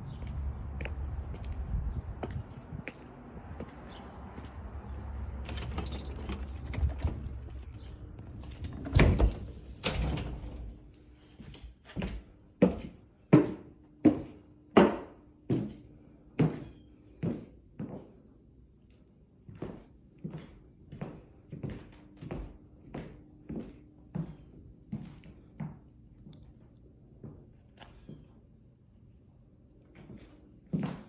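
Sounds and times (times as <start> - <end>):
door swinging shut: 8.4 - 10.8.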